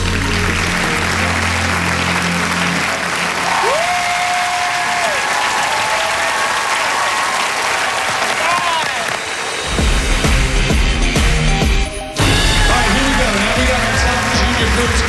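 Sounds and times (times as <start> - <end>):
crowd cheering: 0.0 - 10.6, 12.2 - 15.0
audience applauding: 0.0 - 11.4, 12.2 - 15.0.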